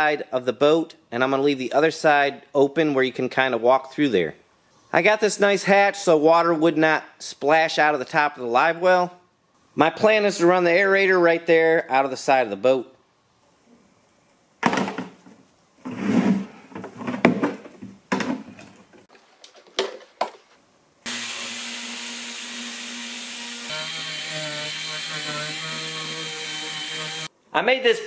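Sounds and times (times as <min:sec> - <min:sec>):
air drill drilling plastic: 0:21.1 - 0:27.3.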